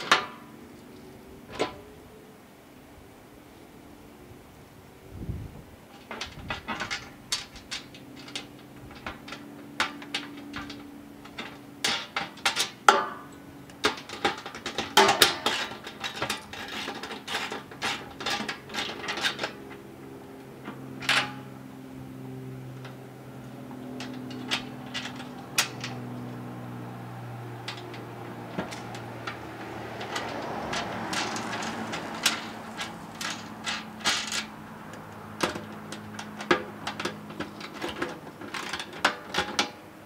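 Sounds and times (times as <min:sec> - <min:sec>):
metal hardware clinking in drum: 0:00.0 - 0:00.5, 0:01.5 - 0:01.9, 0:05.9 - 0:19.8, 0:20.5 - 0:21.6, 0:23.9 - 0:26.4, 0:27.4 - 0:39.8.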